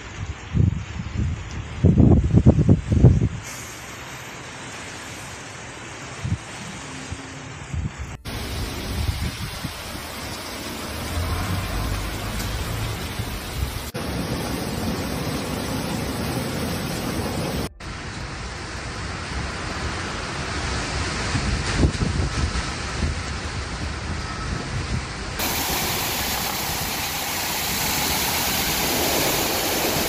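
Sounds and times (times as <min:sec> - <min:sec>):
storm water rushing: 0:00.0 - 0:30.0
heavy rain falling: 0:03.6 - 0:30.0
floodwater gushing from culvert: 0:08.2 - 0:23.8, 0:25.4 - 0:30.0.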